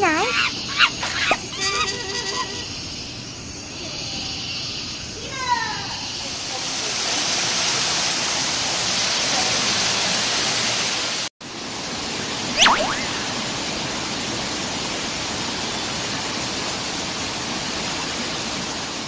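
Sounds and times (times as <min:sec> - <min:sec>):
waterfall splashing into pool: 0:06.4 - 0:11.3, 0:12.6 - 0:19.0
sharp whistle sliding down: 0:12.6 - 0:13.4.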